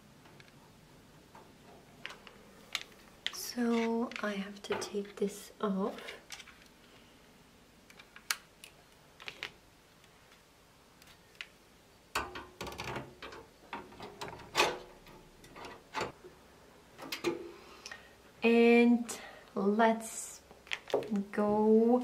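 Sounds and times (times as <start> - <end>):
metal and plastic clicks and knocks: 12.2 - 16.2.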